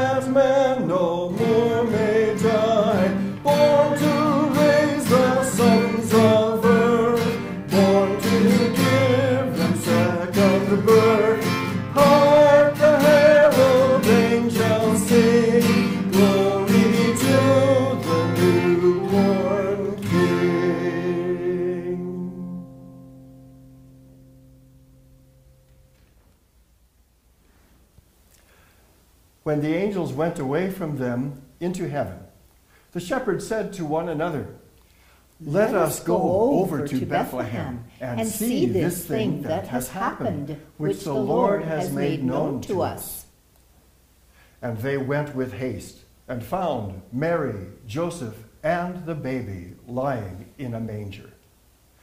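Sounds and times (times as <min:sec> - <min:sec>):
acoustic guitar music: 0:00.0 - 0:26.4, 0:34.0 - 0:43.3.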